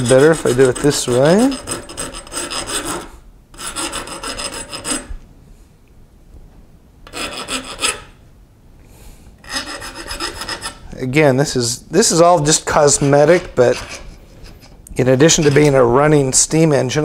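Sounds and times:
file rasping on metal: 0:00.0 - 0:05.1, 0:07.1 - 0:08.2, 0:09.4 - 0:10.9, 0:12.4 - 0:15.8.

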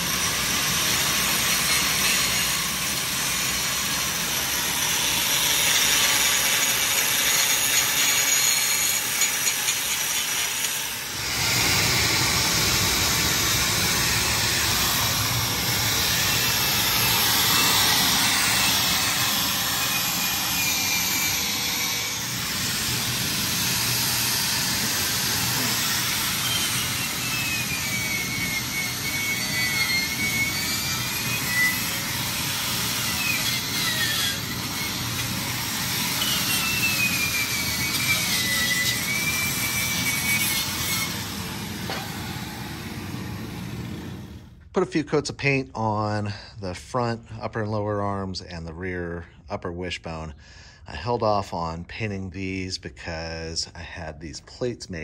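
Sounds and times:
wire brush scouring rust: 0:00.0 - 0:42.2
angle grinder cutting steel: 0:00.0 - 0:43.5.

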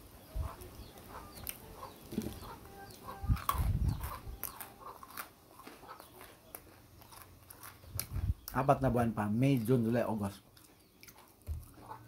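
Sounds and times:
chickens clucking: 0:00.1 - 0:07.2, 0:11.6 - 0:12.0.

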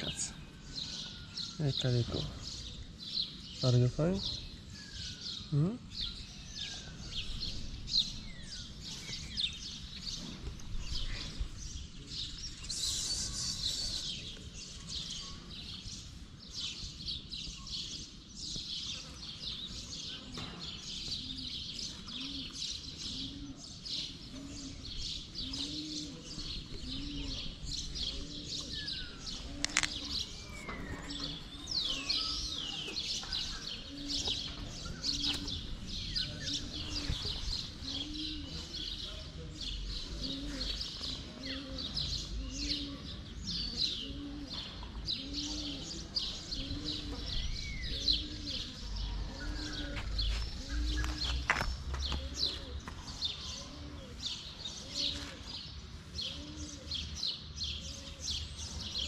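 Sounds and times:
small birds chirping: 0:00.0 - 0:59.0
dove cooing: 0:18.9 - 0:57.2.

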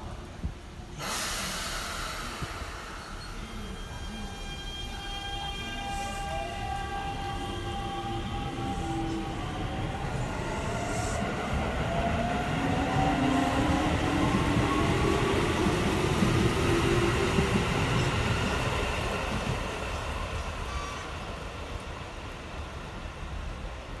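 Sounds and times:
wheels rumbling on rail: 0:00.0 - 0:24.0
electric train inverter whine: 0:01.0 - 0:24.0.

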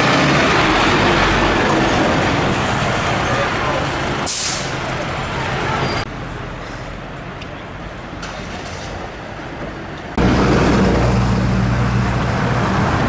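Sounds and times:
street traffic noise: 0:00.0 - 0:13.0
diesel engine droning: 0:10.1 - 0:13.0.

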